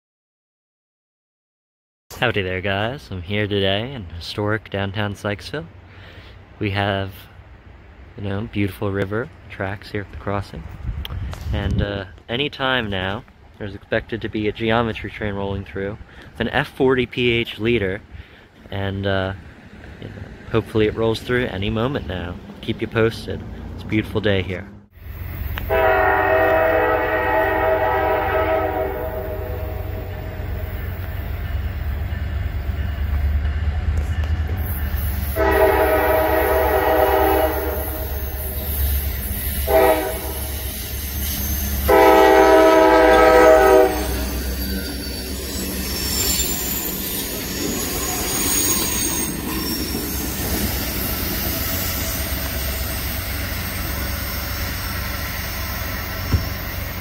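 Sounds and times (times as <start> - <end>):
locomotive air horn: 25.6 - 30.8, 35.1 - 44.5
train wheels squealing: 34.6 - 35.4, 37.5 - 57.0.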